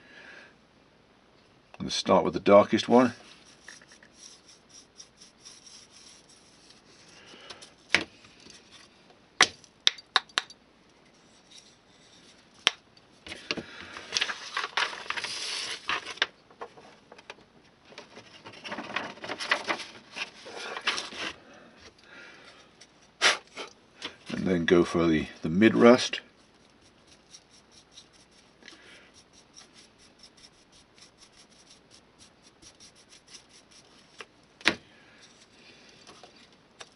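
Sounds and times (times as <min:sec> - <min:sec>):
stiff brush scratching: 0:02.9 - 0:07.2, 0:26.3 - 0:34.2.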